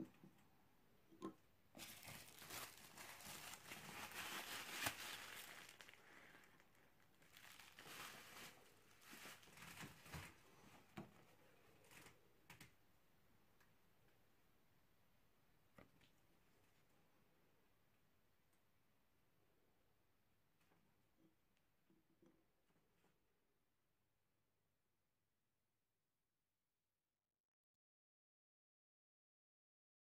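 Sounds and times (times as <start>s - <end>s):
bubble wrap crinkling: 1.7s - 10.5s.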